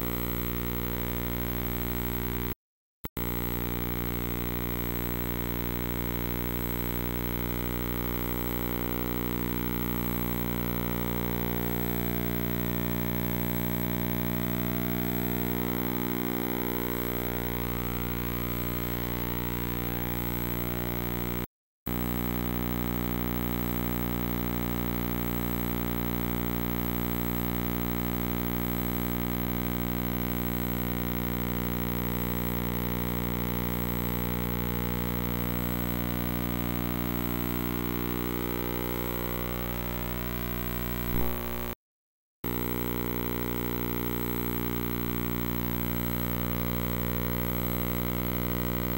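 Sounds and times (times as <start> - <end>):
electrical hum: 8.5 - 21.4, 33.7 - 41.8.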